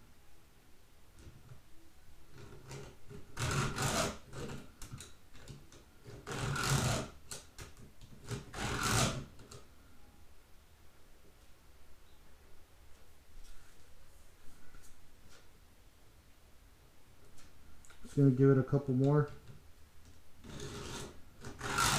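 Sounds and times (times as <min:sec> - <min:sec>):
file scraping saw chain teeth: 0:02.5 - 0:04.6, 0:06.2 - 0:07.1, 0:08.3 - 0:09.2, 0:20.4 - 0:21.9.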